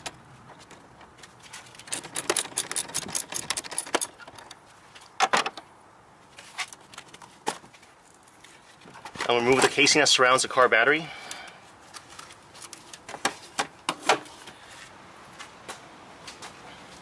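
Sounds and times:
metallic clinks: 1.9 - 4.2
socket ratchet clicking: 1.9 - 4.2.

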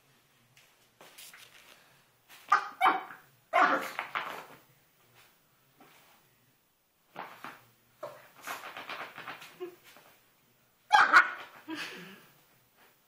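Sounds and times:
puppy barking: 2.5 - 4.0, 10.9 - 11.6.

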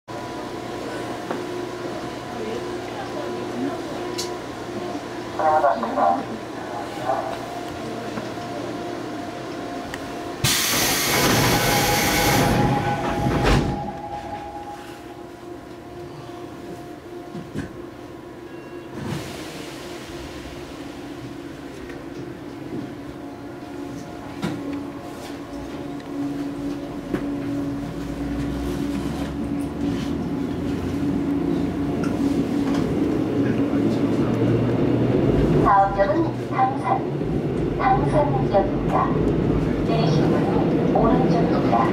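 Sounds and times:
train equipment hum: 0.1 - 41.9
wheel and rail rumble: 0.1 - 41.9
pneumatic door air hiss: 10.4 - 12.7.

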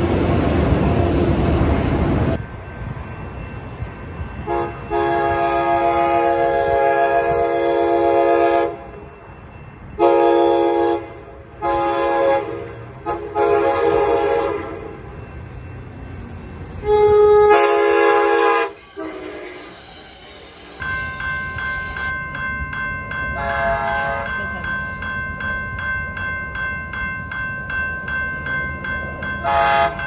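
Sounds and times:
railroad crossing bell: 1.5 - 30.0
train air horn blasts: 4.4 - 9.1, 10.0 - 14.9, 16.8 - 19.8, 23.4 - 24.3, 29.4 - 30.0.

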